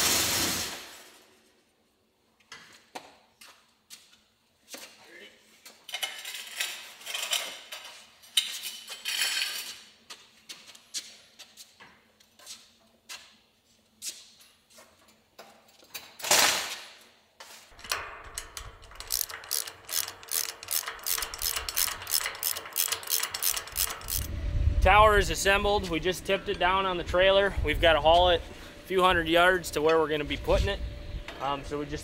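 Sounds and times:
metal clatter and scraping: 5.9 - 9.9, 17.7 - 24.3
ratchet clicks: 17.8 - 24.3
low hum: 23.5 - 32.0.

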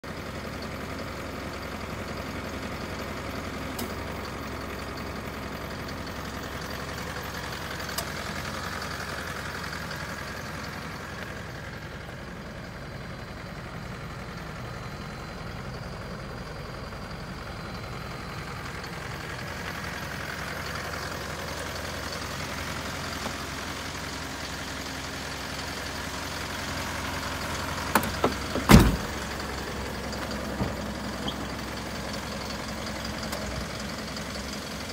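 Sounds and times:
truck diesel engine idling: 0.0 - 34.9
door clunking heavily: 27.9 - 29.2, 30.5 - 31.4.

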